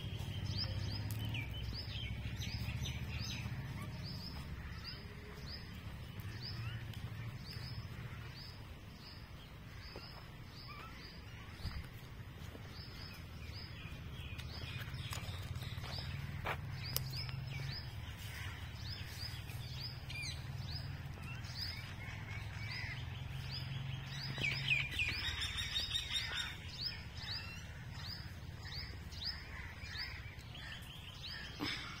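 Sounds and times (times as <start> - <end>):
small birds chirping: 0.0 - 32.0.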